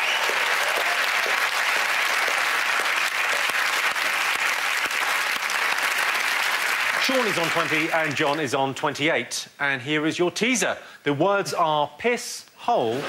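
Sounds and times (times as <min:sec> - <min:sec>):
audience applauding: 0:00.0 - 0:08.5.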